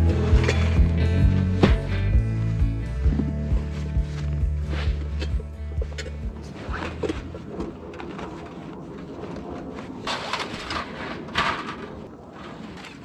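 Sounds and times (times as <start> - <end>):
metal panels scraping: 9.9 - 13.0.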